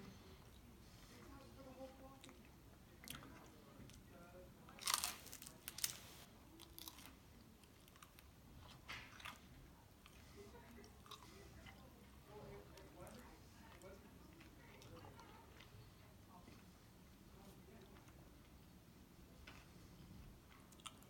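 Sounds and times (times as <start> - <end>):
crunchy chewing: 4.7 - 12.2, 12.8 - 16.7, 19.4 - 21.0
crunchy bite: 4.8 - 6.0.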